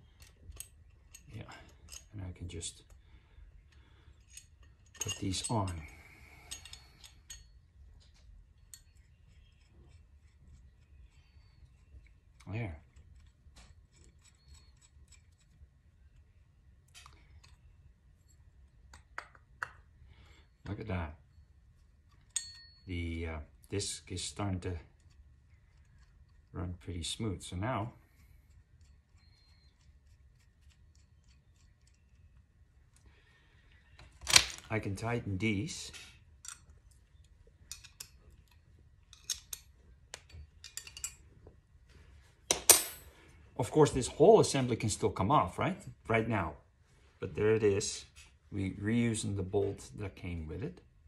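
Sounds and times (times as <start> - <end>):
small metal clicks: 0.0 - 2.2, 3.6 - 19.2, 21.7 - 22.9, 24.7 - 26.6, 28.1 - 34.8, 35.9 - 41.6.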